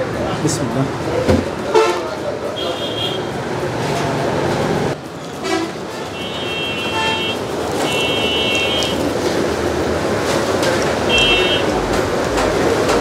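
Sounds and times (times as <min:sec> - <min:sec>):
traffic rumble: 0:00.0 - 0:13.0
vehicle horns honking: 0:01.7 - 0:03.4, 0:05.3 - 0:09.1, 0:11.0 - 0:12.8.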